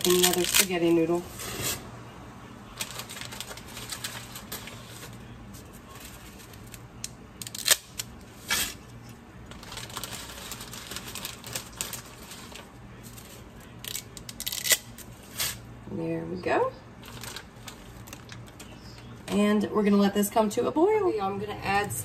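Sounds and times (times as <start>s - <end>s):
dry spaghetti snapping: 6.4s - 8.8s, 13.6s - 15.6s.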